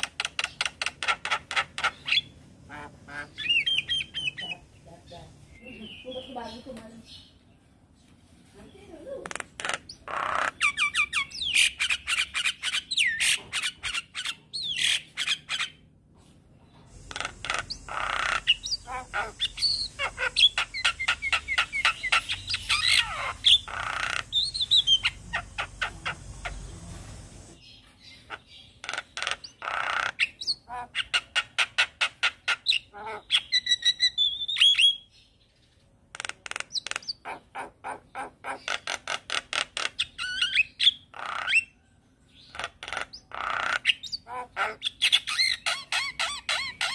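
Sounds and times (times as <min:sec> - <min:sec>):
bird singing harsh clicking notes: 0:00.0 - 0:02.3.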